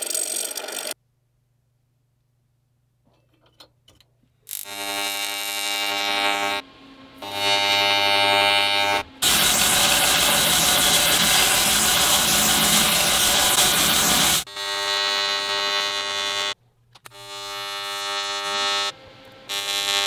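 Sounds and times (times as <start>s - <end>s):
belt grinder whine: 4.5s - 20.0s
steel grinding on abrasive belt: 7.2s - 16.6s.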